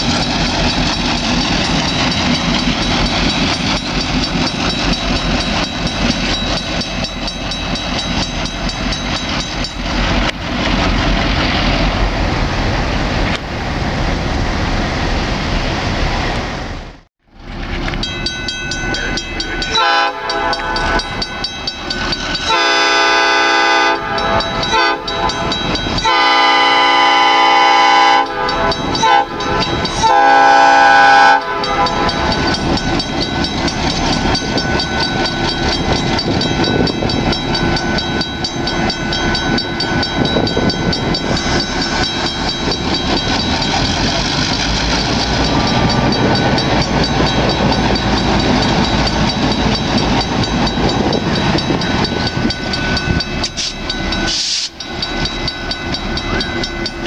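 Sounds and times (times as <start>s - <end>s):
locomotive engines and wheels rumbling: 0.0s - 57.0s
locomotive horn blasts: 19.7s - 21.0s, 22.5s - 32.5s.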